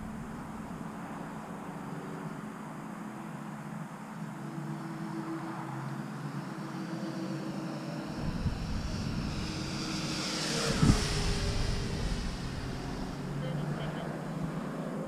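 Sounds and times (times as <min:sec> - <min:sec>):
wind rumble on microphone: 0:00.0 - 0:03.3, 0:04.1 - 0:15.0
model plane motor whine: 0:04.4 - 0:15.0.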